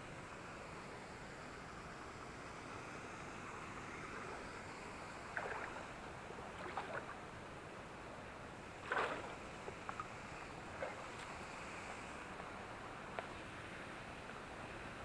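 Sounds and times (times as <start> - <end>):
stream water rushing: 1.7 - 15.0
footsteps wading through water: 5.4 - 7.2, 8.8 - 10.1.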